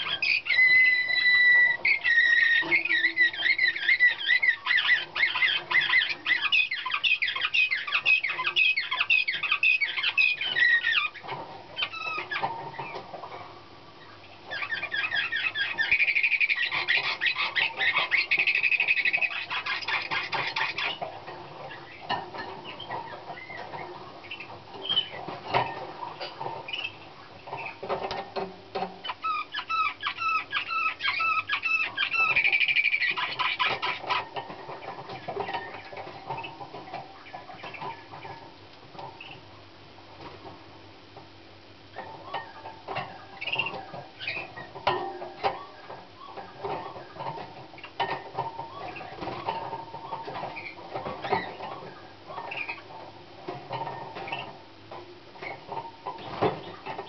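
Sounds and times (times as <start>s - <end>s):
canary singing: 0.0s - 39.6s, 41.9s - 57.0s.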